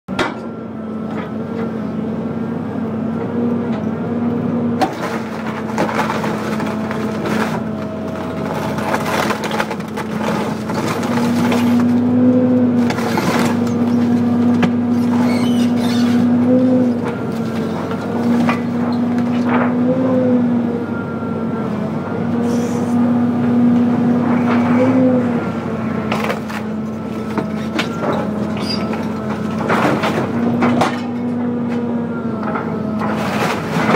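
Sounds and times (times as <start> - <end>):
excavator diesel engine running: 0.1 - 33.9
cracks and crunches of tearing metal: 4.8 - 12.0, 12.8 - 16.2, 26.1 - 31.8, 32.5 - 33.9.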